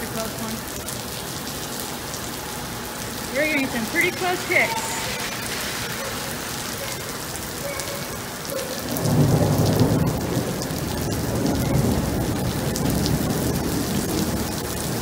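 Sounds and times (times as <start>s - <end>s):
rain on wet pavement: 0.0s - 15.0s
thunder rumbling: 3.0s - 15.0s.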